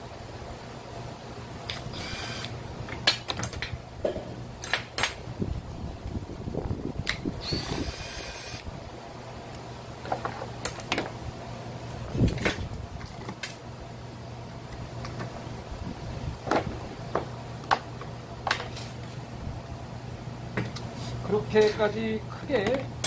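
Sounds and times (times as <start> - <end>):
cordless drill whirring: 1.7 - 2.6, 7.4 - 8.7.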